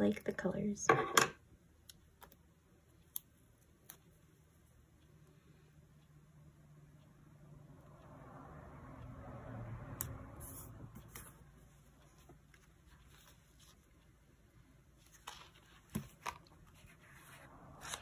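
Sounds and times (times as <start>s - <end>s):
paper rustling: 15.0s - 18.0s.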